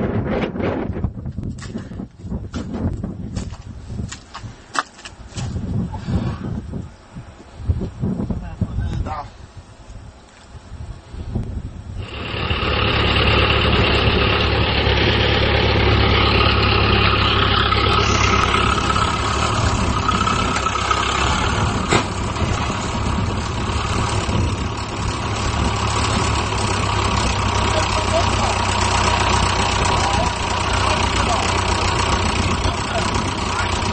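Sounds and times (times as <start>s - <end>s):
tractor engine running under load: 12.0s - 33.9s.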